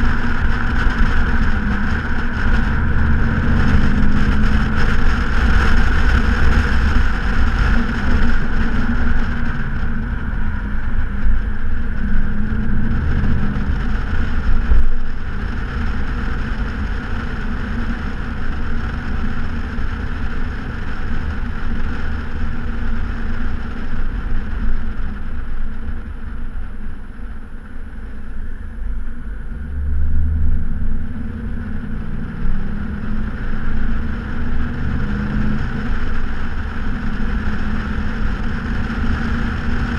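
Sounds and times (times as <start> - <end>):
car engine droning: 0.0 - 39.9
road noise: 0.0 - 39.9
wind noise: 0.0 - 39.9.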